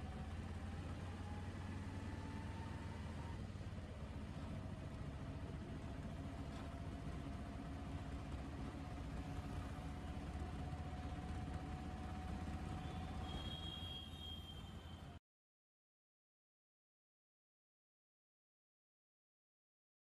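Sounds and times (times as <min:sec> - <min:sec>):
engine rumbling: 0:00.0 - 0:15.2
faint engine whine: 0:00.0 - 0:15.2.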